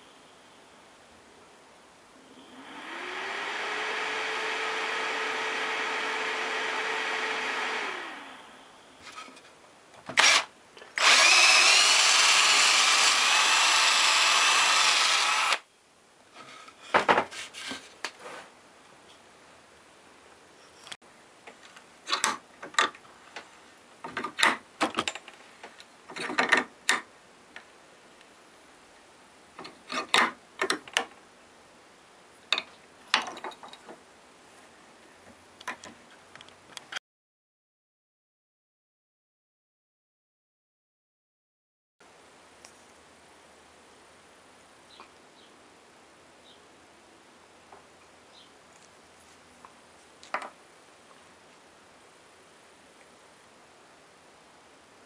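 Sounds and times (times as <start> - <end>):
rough whirring motor: 2.6 - 8.5, 11.0 - 15.6
motor humming: 11.0 - 15.6.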